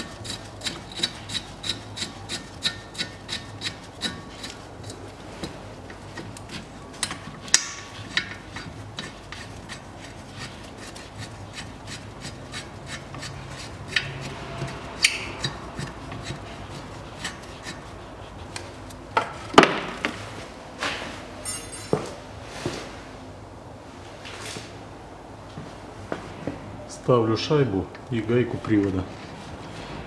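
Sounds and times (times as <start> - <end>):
metallic clicks and scraping: 0.0 - 19.4.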